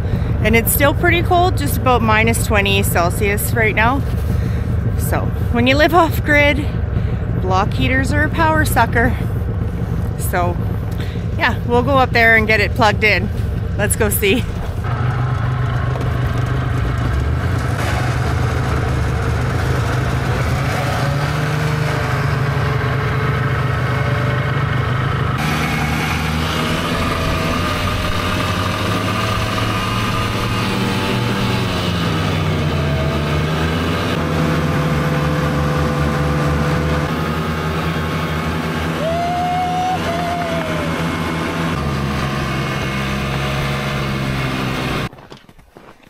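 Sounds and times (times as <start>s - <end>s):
vehicle engine running: 0.0s - 45.1s.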